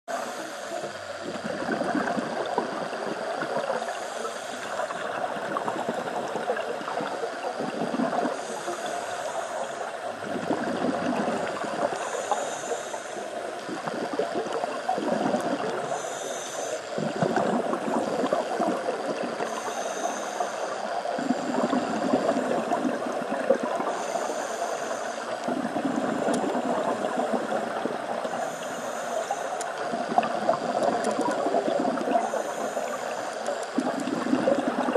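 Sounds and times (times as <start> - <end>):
regulator hissing inhale: 0.1 - 1.7, 3.2 - 7.5, 8.1 - 10.4, 11.2 - 14.2, 15.3 - 34.8
gurgling exhaled bubbles: 0.1 - 34.9.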